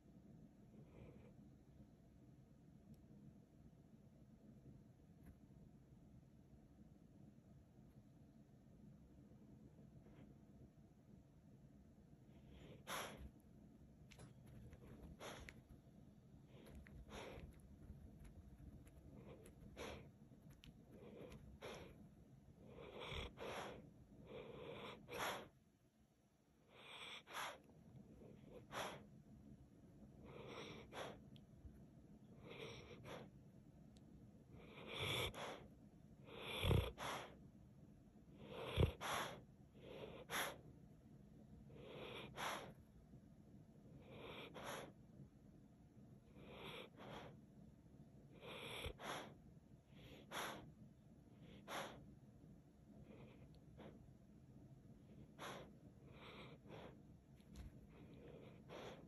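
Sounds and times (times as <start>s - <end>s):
dog breathing in noisy puffs: 12.4s - 13.4s, 14.1s - 15.8s, 16.4s - 22.0s, 22.6s - 25.6s, 28.3s - 29.1s, 30.2s - 31.2s, 34.6s - 37.4s, 38.4s - 40.6s, 41.7s - 42.8s, 44.1s - 45.0s, 46.3s - 47.4s, 48.4s - 50.7s, 51.4s - 52.1s, 55.2s - 59.0s.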